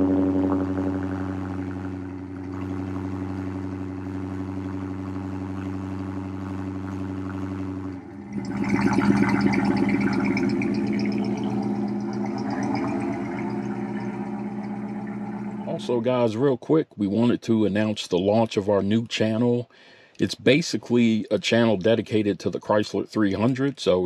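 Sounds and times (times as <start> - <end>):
car engine starting and idling: 0.0 - 16.3
steady low hum: 0.0 - 19.6.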